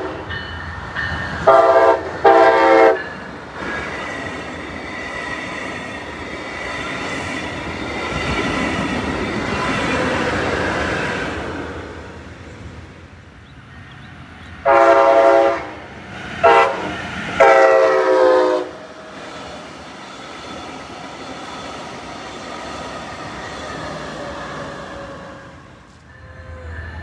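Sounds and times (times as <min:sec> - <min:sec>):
train wheels rumbling on rail: 0:00.0 - 0:27.0
train horn blasts: 0:01.4 - 0:03.1, 0:14.6 - 0:19.1.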